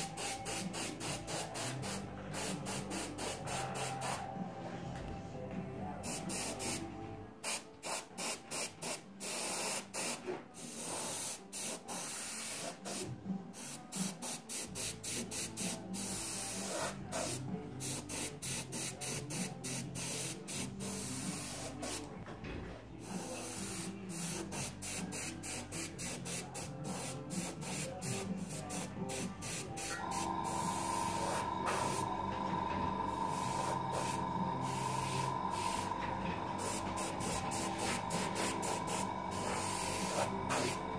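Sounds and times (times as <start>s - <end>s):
airbrush hissing: 0.0s - 4.3s, 13.6s - 22.0s, 23.0s - 40.9s.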